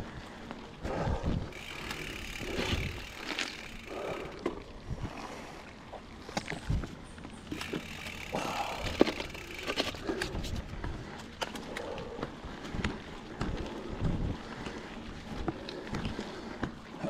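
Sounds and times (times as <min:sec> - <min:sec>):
bike tyre noise on gravel: 0:00.0 - 0:04.6, 0:07.4 - 0:11.8
bike rattling over stones: 0:01.4 - 0:04.4, 0:06.4 - 0:11.6.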